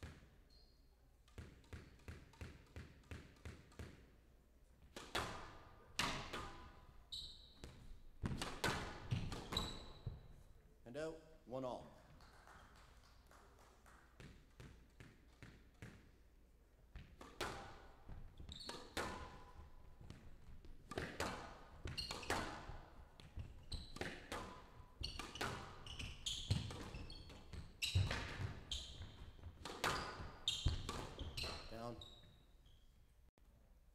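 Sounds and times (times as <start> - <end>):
court shoes squeaking: 0.0 - 3.9, 5.0 - 10.4, 16.9 - 33.1
squash ball cracking off walls: 4.9 - 6.8, 7.6 - 10.2, 14.0 - 16.2, 16.9 - 31.7.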